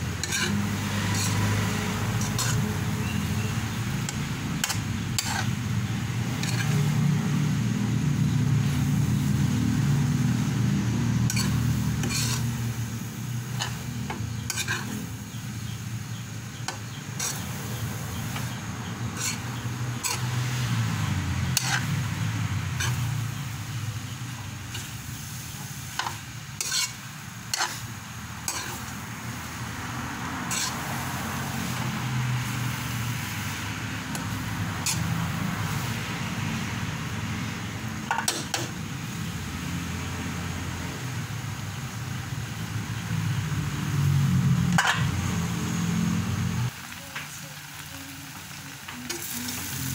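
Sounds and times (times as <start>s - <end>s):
metal spatula scraping wok: 0.0s - 9.4s, 10.4s - 36.5s, 38.0s - 38.8s, 44.6s - 45.5s
light sizzle: 0.0s - 49.9s.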